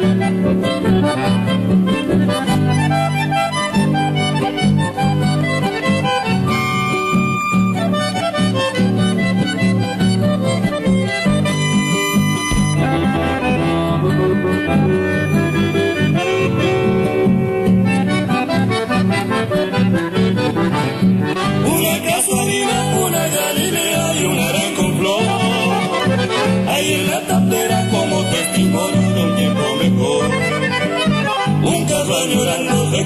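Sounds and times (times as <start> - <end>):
accordion melody: 0.0 - 33.0
guitar accompaniment: 0.0 - 33.0.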